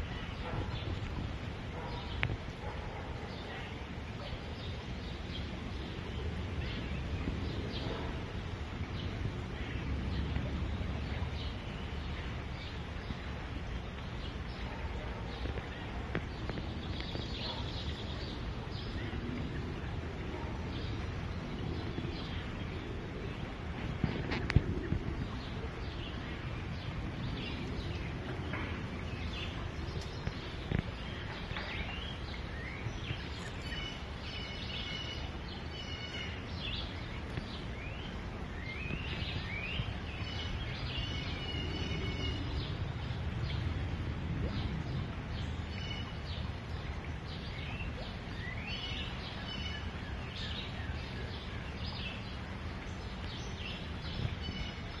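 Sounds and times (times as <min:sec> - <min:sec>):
birds chirping: 0:00.0 - 0:43.8
forest stream rushing: 0:00.0 - 0:55.0.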